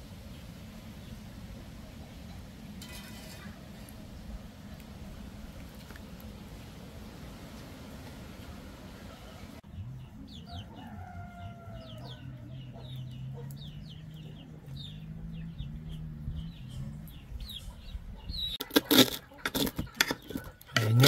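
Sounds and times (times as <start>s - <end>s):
chickens clucking: 9.0s - 16.0s, 16.6s - 21.0s
rooster crowing: 10.4s - 12.6s.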